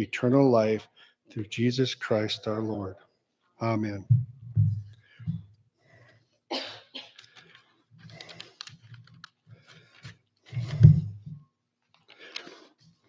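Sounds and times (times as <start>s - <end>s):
person coughing: 6.5s - 7.2s
small clicks and rustles: 7.0s - 13.0s.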